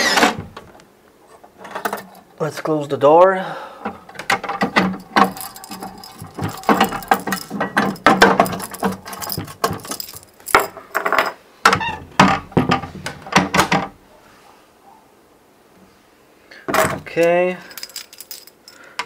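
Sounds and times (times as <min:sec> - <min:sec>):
cabinet door mechanical clicks and clunks: 0:11.7 - 0:14.0.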